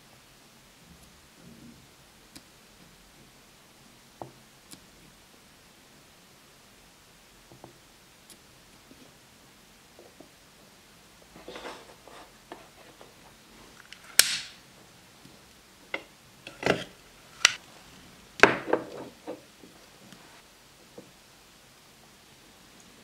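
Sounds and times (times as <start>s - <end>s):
lighter clicking: 14.2s - 14.6s.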